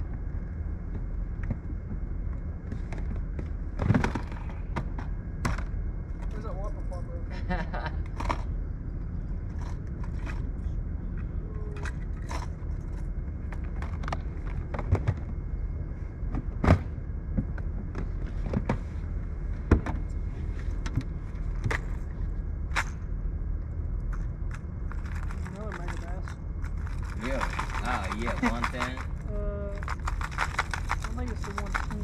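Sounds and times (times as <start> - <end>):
low rumble: 0.0 - 32.0
gear clicking and knocking: 24.1 - 32.0.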